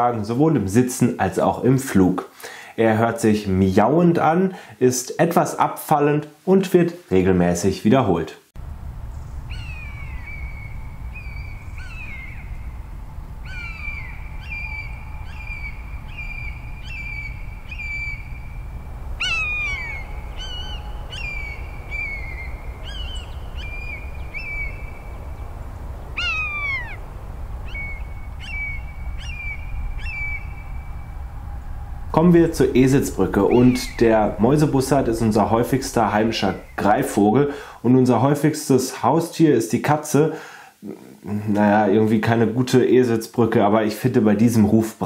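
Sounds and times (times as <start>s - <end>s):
young bird begging calls: 9.1s - 31.1s, 32.4s - 37.8s
buzzard mewing calls: 9.4s - 30.6s, 32.4s - 37.8s.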